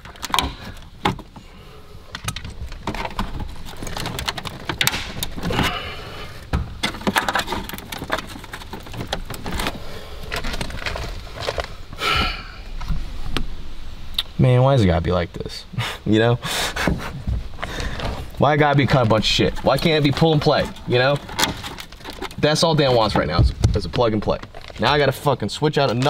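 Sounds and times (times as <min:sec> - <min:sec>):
plastic dash parts clicking and rattling: 0:00.0 - 0:01.4, 0:02.1 - 0:05.8, 0:06.4 - 0:12.0, 0:17.3 - 0:25.0.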